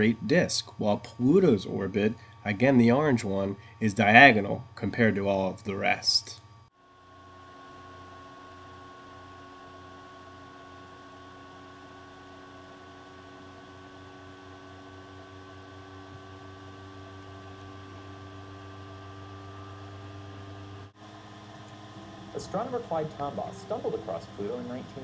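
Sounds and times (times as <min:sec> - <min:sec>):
low electrical hum: 0:00.0 - 0:25.0
faint high-pitched whines: 0:07.6 - 0:25.0.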